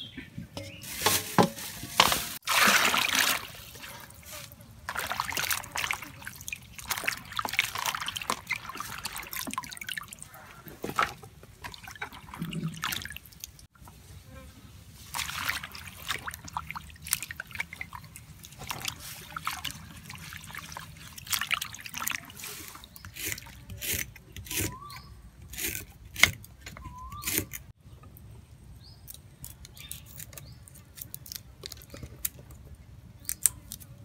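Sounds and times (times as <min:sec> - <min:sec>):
hands swishing greens in water: 0:00.8 - 0:13.2, 0:15.0 - 0:23.6.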